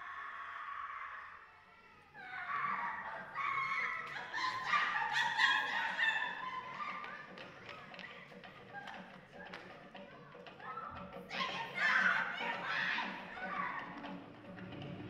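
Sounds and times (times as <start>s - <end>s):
high-pitched voices shrieking: 0.0s - 7.2s, 10.6s - 14.0s.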